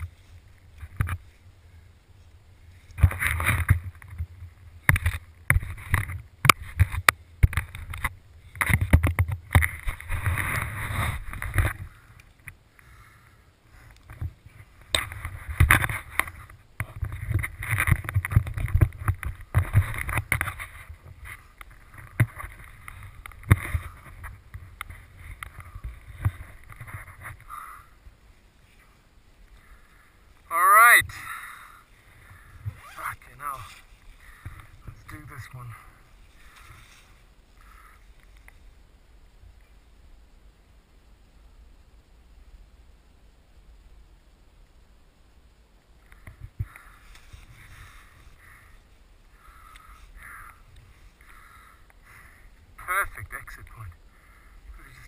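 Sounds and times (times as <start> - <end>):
wind buffeting camera: 2.3 - 12.6, 13.9 - 28.2
knocks and scrapes on rock: 3.0 - 11.9, 14.1 - 27.5.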